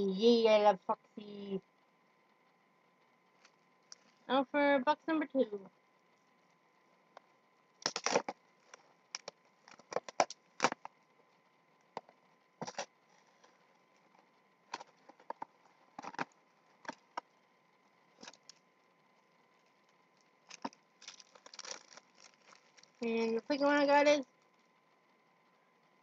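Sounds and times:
plastic wrapping crinkling: 7.8 - 11.0, 12.6 - 17.3, 19.6 - 23.6.

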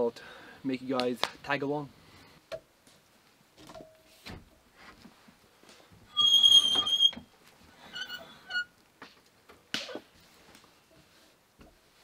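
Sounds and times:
high squeak: 6.1 - 7.2, 7.9 - 8.7.

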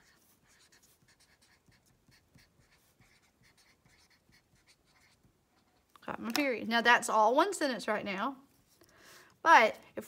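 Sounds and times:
marker writing on paper: 0.0 - 5.9.

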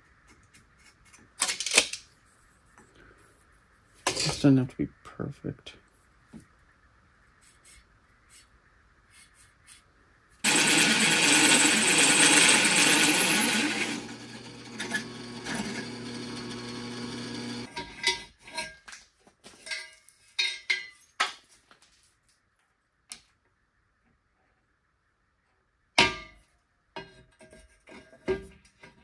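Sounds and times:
drill press cutting steel: 10.4 - 17.7
motor humming: 10.5 - 17.7
metal tube clattering: 19.6 - 21.0.

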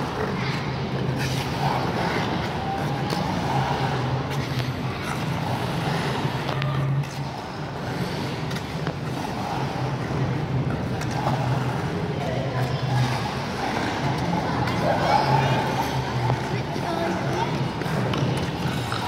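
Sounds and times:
ice rink rumble and hiss: 0.0 - 19.0.

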